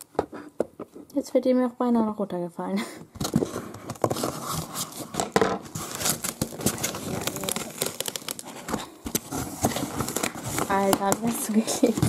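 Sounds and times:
cardboard parcel rustling and tearing: 0:03.2 - 0:12.0.

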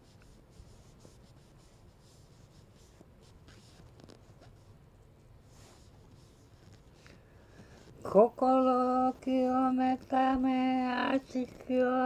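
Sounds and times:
faint rustling: 0:00.1 - 0:12.0.

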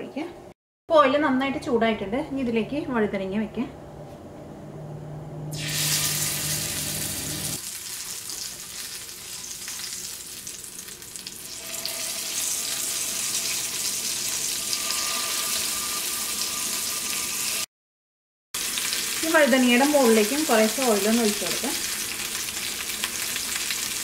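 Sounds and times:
hot oil sizzling in a frying pan: 0:05.5 - 0:17.7, 0:18.6 - 0:24.0.

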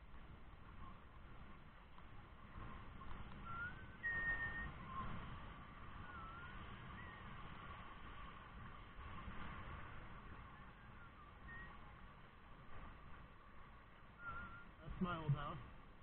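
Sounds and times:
person whistling: 0:03.5 - 0:04.7, 0:14.2 - 0:14.7.

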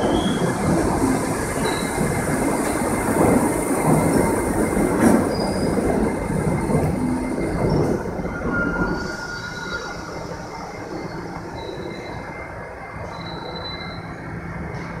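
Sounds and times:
subway train rolling past: 0:00.0 - 0:15.0
wheel and brake squeals: 0:05.1 - 0:05.9, 0:07.4 - 0:12.4, 0:13.0 - 0:14.3.

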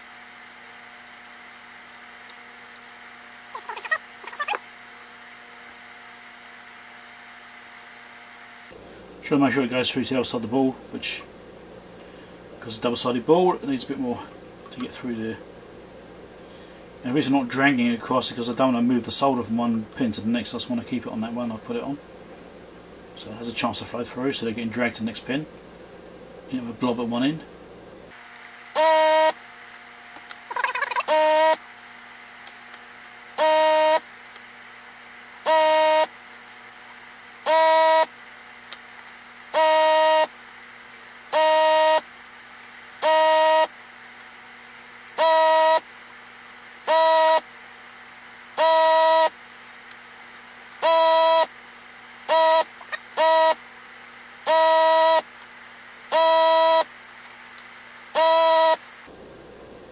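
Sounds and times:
buzzy electronic beeps: 0:30.5 - 0:31.6, 0:41.4 - 0:42.0, 0:43.0 - 0:43.7, 0:45.2 - 0:45.8, 0:46.9 - 0:47.4, 0:48.6 - 0:49.3, 0:50.8 - 0:51.5, 0:52.3 - 0:53.6, 0:54.5 - 0:55.2, 0:56.1 - 0:56.8, 0:58.2 - 0:58.8.

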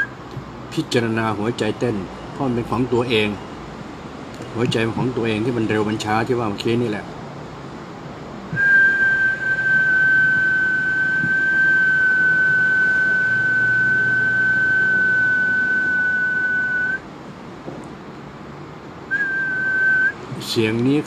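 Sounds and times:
long high whistled note: 0:08.6 - 0:17.0, 0:19.1 - 0:20.2.

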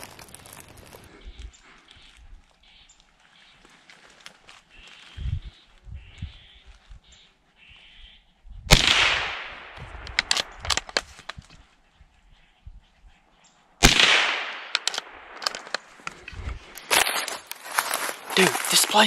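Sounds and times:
echoing gunshots: 0:08.7 - 0:11.0, 0:13.8 - 0:15.8.

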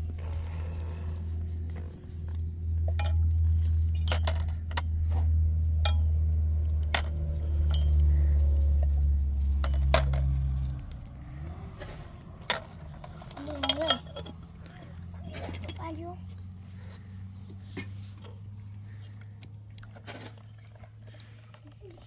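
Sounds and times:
steady low rumble: 0:00.0 - 0:19.9
sharp clinks and knocks: 0:02.8 - 0:05.1, 0:05.8 - 0:06.3, 0:06.9 - 0:08.2, 0:09.5 - 0:10.6, 0:12.5 - 0:14.6.

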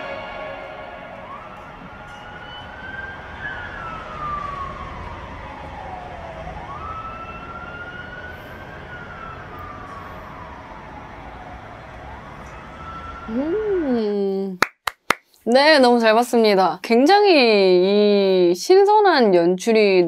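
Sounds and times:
siren wailing: 0:00.0 - 0:14.0.

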